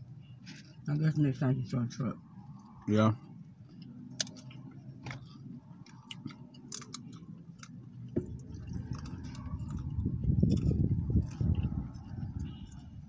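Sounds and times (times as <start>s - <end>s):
chewing with mouth clicks: 3.6s - 12.9s.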